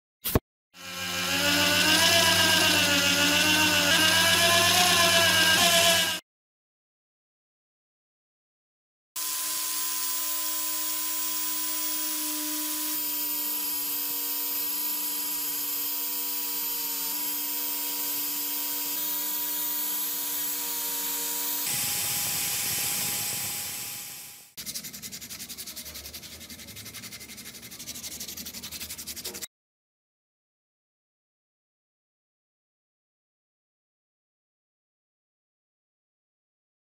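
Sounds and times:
power sander grinding wood: 0.8 - 6.2, 9.2 - 24.9
sandpaper rubbing wood by hand: 24.6 - 29.5.

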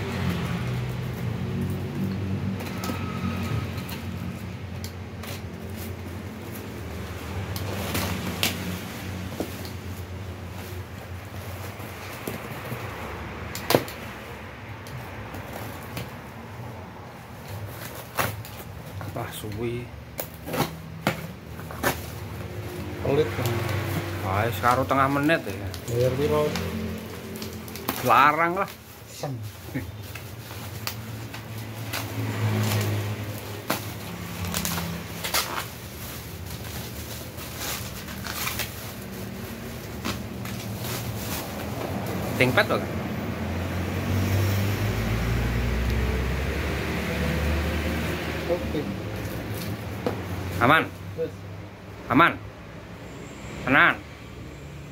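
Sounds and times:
bubble wrap crackles: 0.0 - 13.0, 20.2 - 42.6
bubble wrap crinkling: 20.2 - 42.7.

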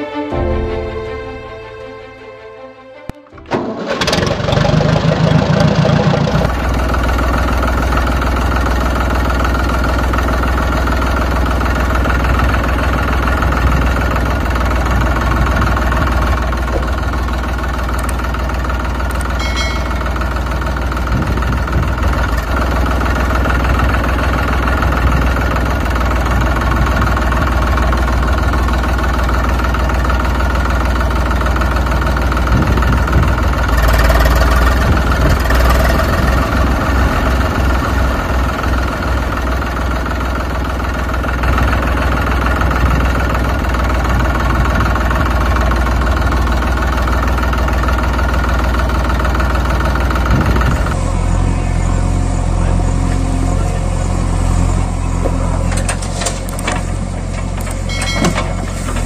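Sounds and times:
tractor diesel engine idling: 3.3 - 59.0.

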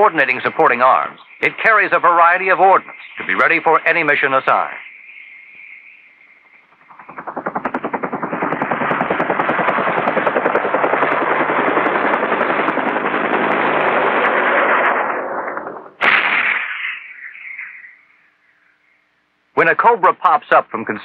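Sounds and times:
rapid automatic gunfire: 6.5 - 16.8
loud blast: 6.9 - 17.9.

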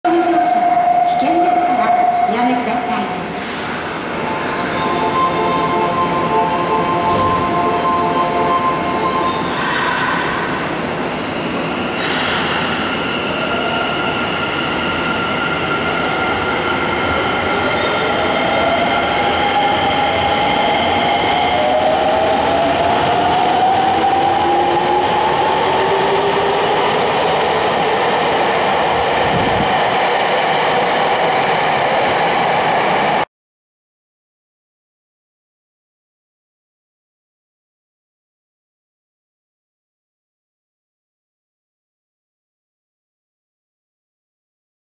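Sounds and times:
steady tones from train: 0.1 - 33.2.

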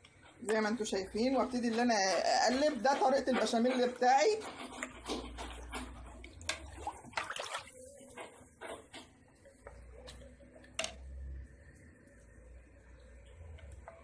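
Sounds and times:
utensil scraping and clinking pot: 0.1 - 7.2
liquid swishing: 1.1 - 8.8.

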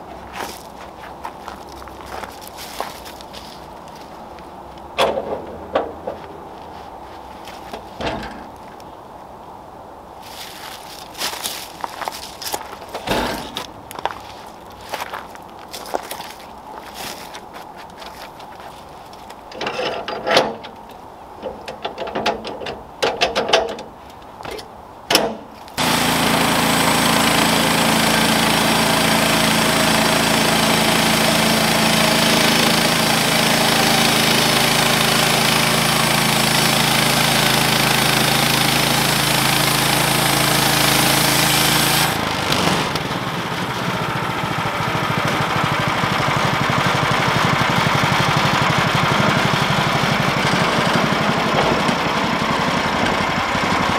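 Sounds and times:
knocks and clatters: 5.0 - 6.3, 7.7 - 8.7, 13.0 - 13.8
sawmill engine running: 12.2 - 14.6, 25.2 - 53.9.

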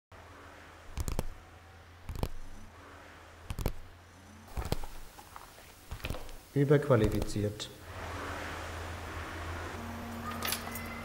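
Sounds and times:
low electrical hum: 0.1 - 11.0
paper pages turning: 4.5 - 6.4.

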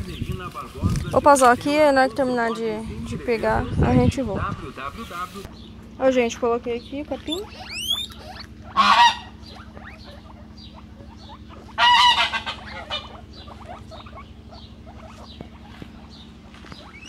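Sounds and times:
faint squeaks and chirps: 6.8 - 17.0
waterfowl honking: 7.2 - 17.0.

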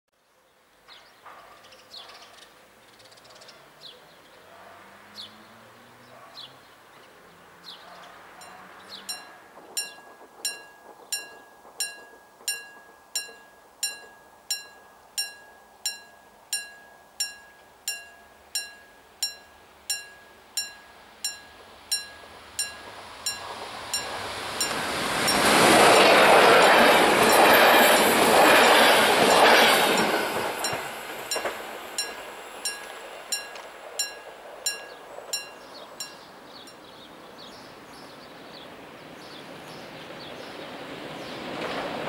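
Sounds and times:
birds chirping: 0.9 - 15.3
warning bell striking: 8.4 - 25.5
electric train rumble: 8.7 - 17.4, 18.2 - 37.3.

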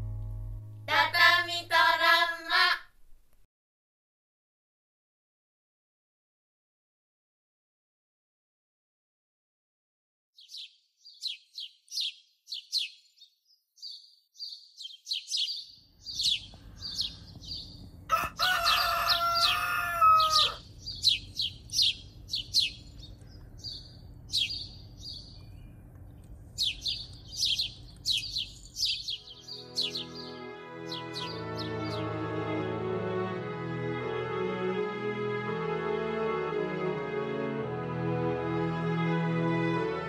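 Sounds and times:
faint low hum: 0.0 - 3.4, 20.6 - 29.2
small birds chirping: 10.4 - 32.1
rooster crowing: 18.1 - 20.6.

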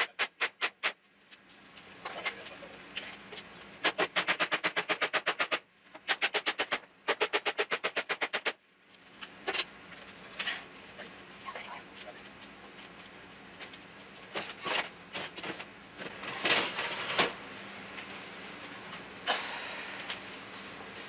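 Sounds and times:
faint steady hum: 8.6 - 21.0.

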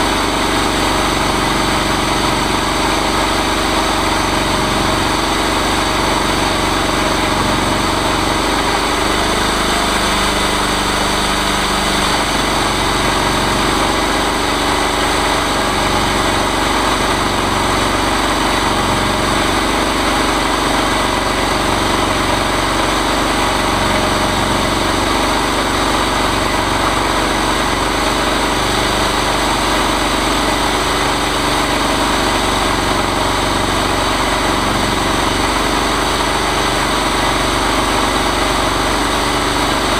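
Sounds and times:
chainsaw engine running: 0.0 - 39.9.

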